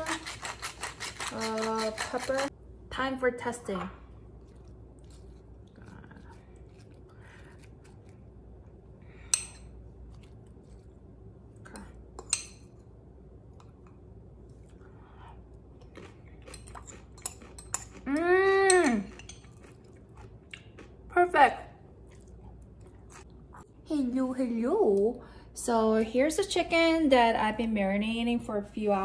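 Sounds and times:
fork scraping coleslaw in glass bowl: 0:00.0 - 0:02.5.

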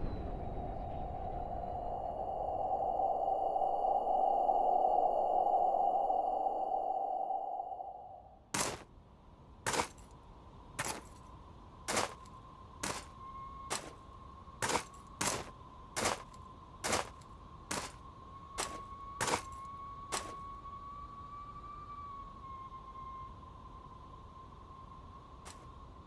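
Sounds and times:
faint whistling wind: 0:00.0 - 0:26.0
cartoon footsteps: 0:08.6 - 0:08.9, 0:09.7 - 0:10.1, 0:10.8 - 0:11.2, 0:11.9 - 0:13.1, 0:13.7 - 0:14.0, 0:14.6 - 0:18.0, 0:18.6 - 0:20.4.

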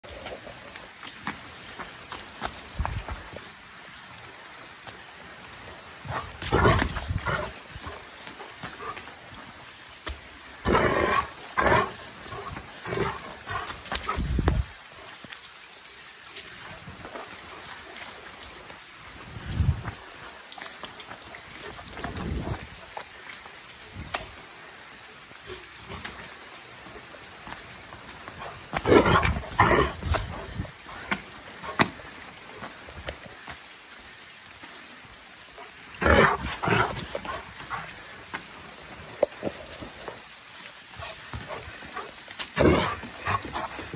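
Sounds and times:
rain falling: 0:00.0 - 0:43.9
dog growling and barking: 0:06.0 - 0:07.6, 0:10.6 - 0:14.2, 0:28.4 - 0:31.0, 0:36.0 - 0:38.0, 0:41.4 - 0:43.9.

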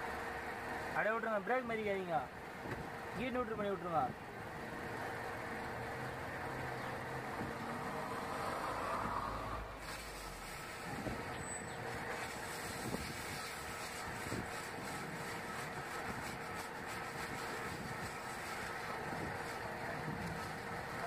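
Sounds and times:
abrasive hissing on brake disc: 0:09.0 - 0:20.6.

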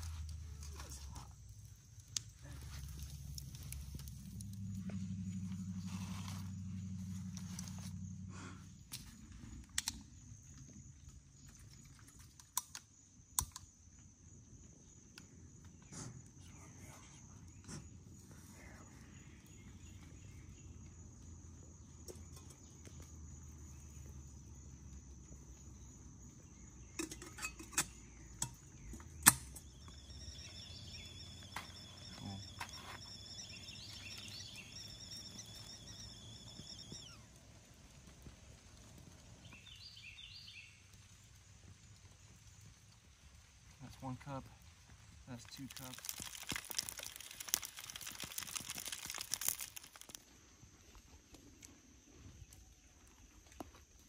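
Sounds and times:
high insect drone: 0:00.0 - 0:11.6, 0:12.8 - 0:43.0, 0:43.6 - 0:53.9
metal clinks of camping kettle: 0:26.9 - 0:29.5.

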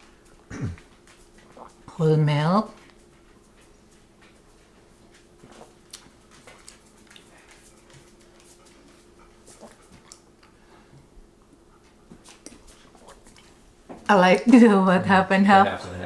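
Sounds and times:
faint hum: 0:00.0 - 0:16.0
person sipping coffee: 0:00.8 - 0:01.8, 0:12.4 - 0:13.6.

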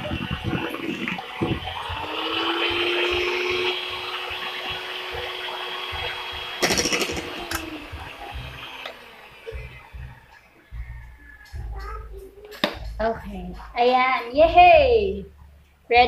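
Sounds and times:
electric hand mixer whirring: 0:00.0 - 0:10.7.

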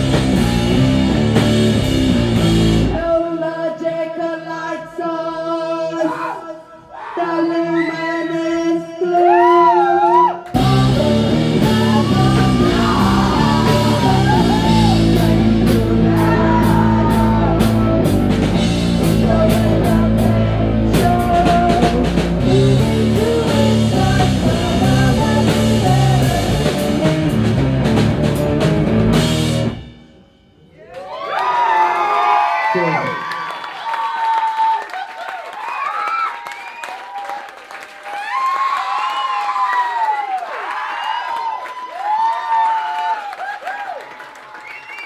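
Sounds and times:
electric guitar: 0:00.0 - 0:03.1, 0:10.5 - 0:30.1
live rock band: 0:00.0 - 0:03.2, 0:10.5 - 0:30.2
drums: 0:00.0 - 0:03.4, 0:09.2 - 0:30.9
woman singing: 0:02.9 - 0:27.5.

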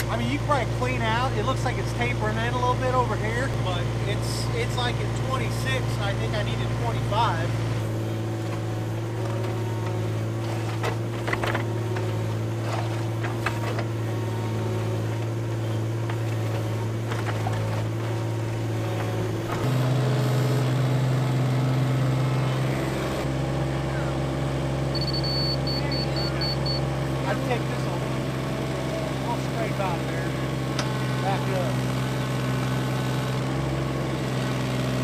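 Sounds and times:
excavator diesel engine running: 0:00.0 - 0:35.0
rapid high beeps: 0:25.0 - 0:26.8.

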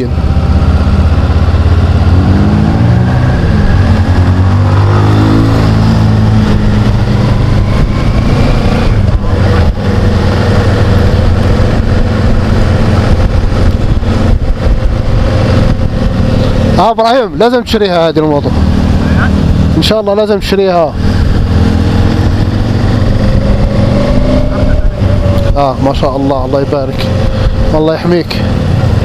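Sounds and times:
motorcycle engine running: 0:00.0 - 0:29.0
wind rushing over microphone: 0:00.0 - 0:29.0.

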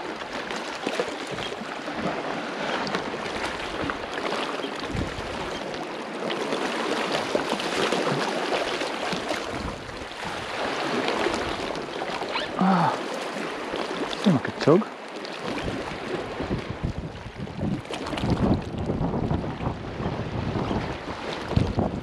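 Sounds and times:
sea water lapping against rocks: 0:00.0 - 0:22.0
small splashes: 0:05.6 - 0:16.3.

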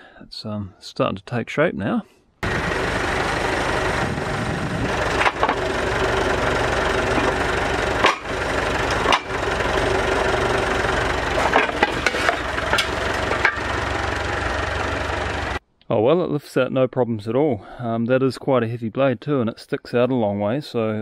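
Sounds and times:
tractor diesel engine running: 0:02.4 - 0:15.6
metal clanks: 0:04.8 - 0:15.6.

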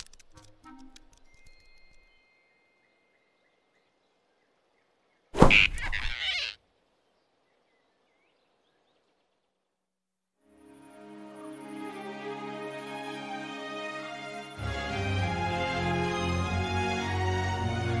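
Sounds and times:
cartoon grab sound effect: 0:05.4 - 0:06.3.

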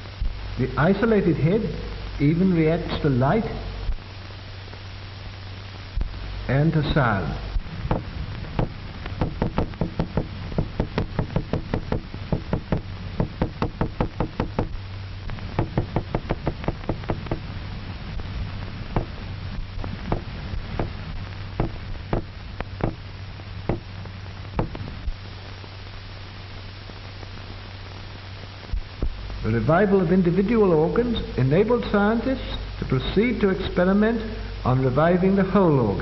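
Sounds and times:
low soundtrack hum: 0:00.0 - 0:32.1
hammer knocking on table: 0:09.2 - 0:14.7, 0:15.6 - 0:17.4, 0:21.6 - 0:23.0.

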